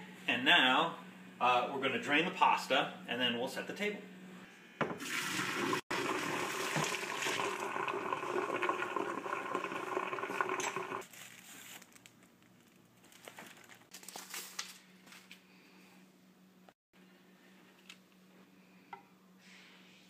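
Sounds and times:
water pouring into sink: 5.0 - 11.0.

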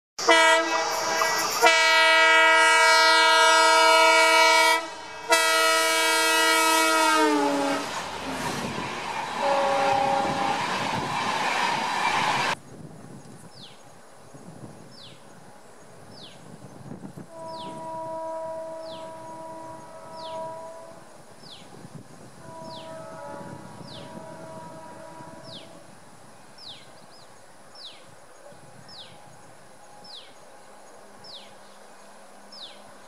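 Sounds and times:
locomotive horn blowing: 0.2 - 8.5, 9.2 - 11.1, 17.2 - 21.1, 22.4 - 25.9
train coaches passing: 0.2 - 33.0.

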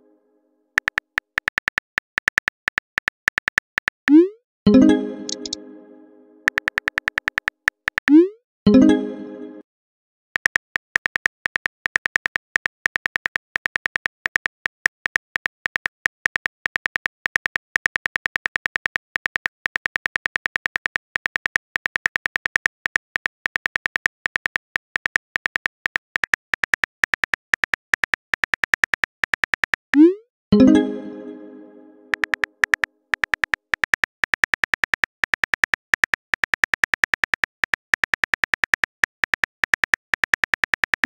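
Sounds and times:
phone keyboard typing clicks: 0.8 - 4.3, 5.3 - 5.6, 6.4 - 8.3, 10.4 - 30.1, 32.1 - 41.0.

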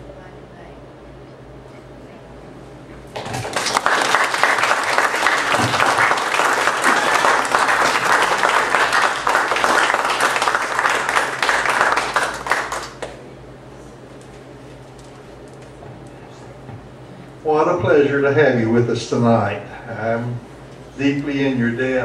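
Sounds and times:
audience applauding: 3.2 - 13.2.

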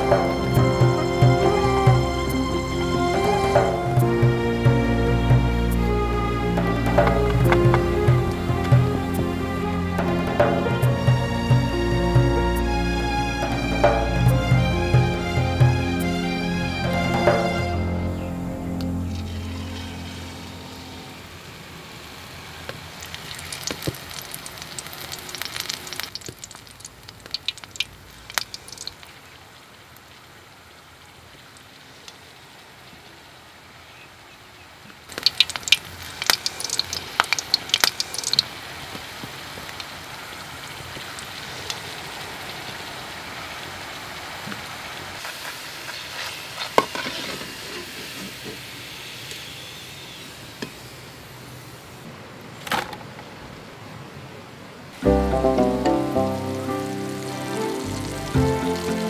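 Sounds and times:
hot oil crackling and sizzling: 18.3 - 33.7, 35.1 - 51.9, 55.0 - 59.0.

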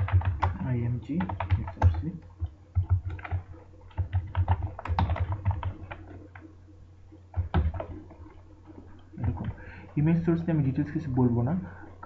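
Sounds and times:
typing on computer keyboard: 0.0 - 6.5, 7.3 - 8.4.

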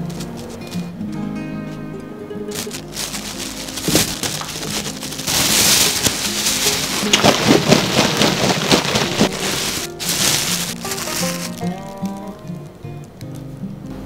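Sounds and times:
cubes tumbling in shaken bag: 0.0 - 0.9, 2.5 - 12.3
plastic bag crinkling: 0.0 - 1.0, 2.5 - 12.7
soft background music: 0.0 - 14.0
potato cubes tipped into bag: 2.5 - 12.3.

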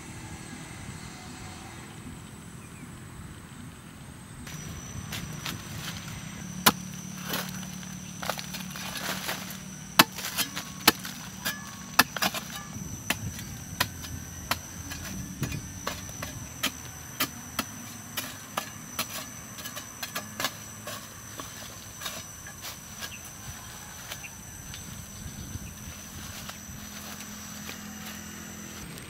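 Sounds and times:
soil crumbling: 4.5 - 24.3
digging blade striking hard earth: 4.5 - 24.4.

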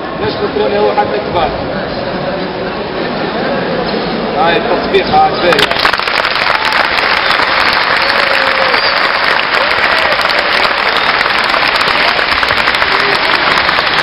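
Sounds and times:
crowd applauding: 5.5 - 14.0.

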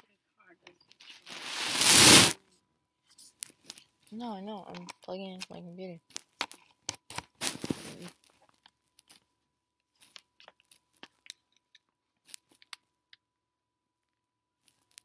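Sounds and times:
rough crunching rustle: 1.3 - 2.4.

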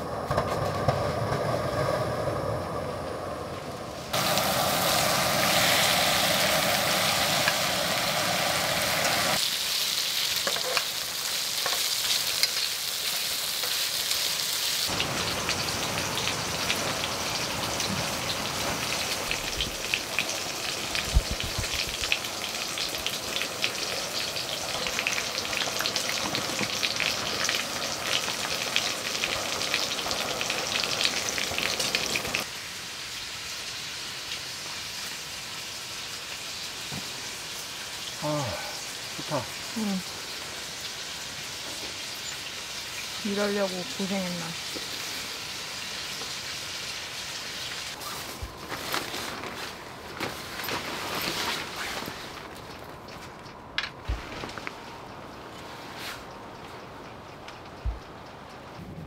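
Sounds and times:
pork sizzling in a pan: 4.1 - 48.4.

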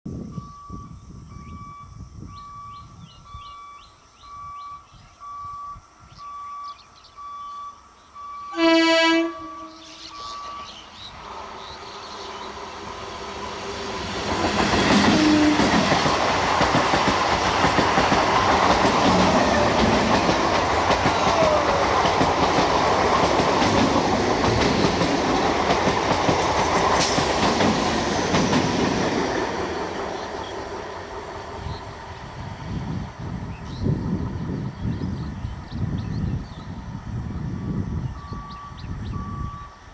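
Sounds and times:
electronic beeps: 0.3 - 8.6, 10.0 - 11.0, 38.2 - 39.8
train running past: 8.2 - 39.9
train horn: 8.5 - 10.7, 15.0 - 15.8.

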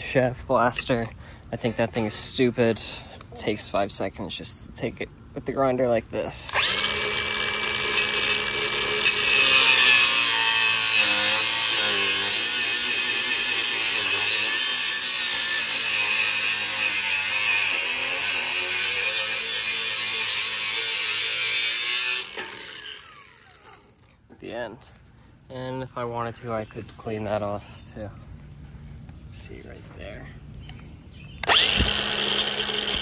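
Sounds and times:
angle grinder grinding steel: 6.5 - 24.1, 31.4 - 33.0.

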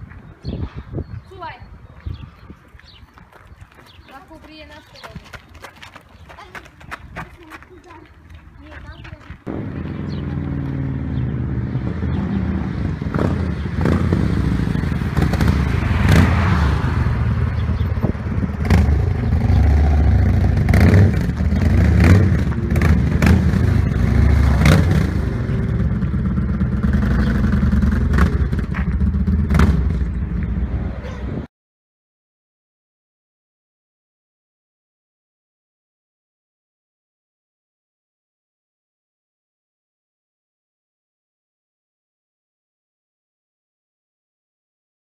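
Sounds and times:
motorcycle engine rumbling: 8.6 - 31.5.

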